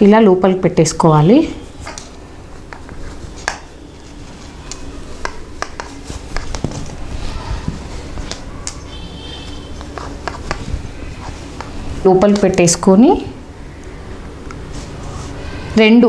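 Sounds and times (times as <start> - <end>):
fabric rustling: 1.5 - 13.2, 14.6 - 15.6.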